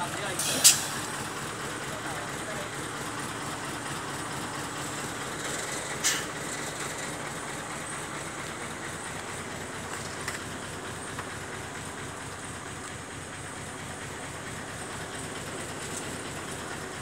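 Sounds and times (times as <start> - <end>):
heavy machine engine running: 0.0 - 17.0.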